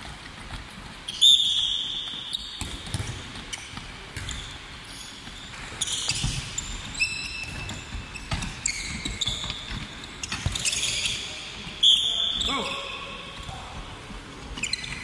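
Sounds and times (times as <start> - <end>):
sneakers squeaking: 0.0 - 15.0
balls bouncing on wooden floor: 2.1 - 11.2.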